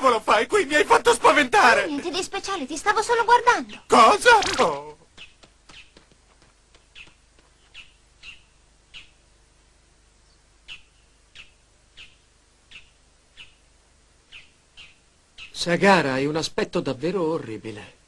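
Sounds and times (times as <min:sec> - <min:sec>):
birds chirping: 0:02.4 - 0:16.3.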